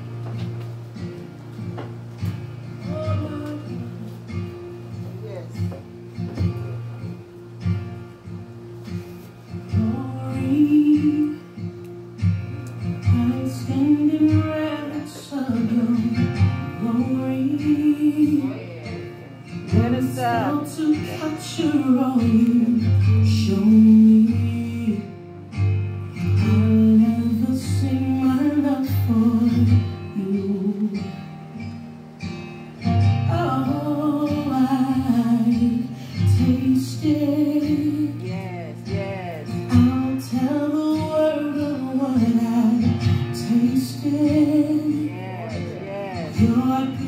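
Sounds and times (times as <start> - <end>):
guitar: 0.0 - 47.0
gospel song: 1.8 - 4.5, 9.0 - 31.8, 32.9 - 47.0
lead voice singing: 2.8 - 4.5, 13.0 - 25.2, 26.3 - 31.3, 33.2 - 47.0.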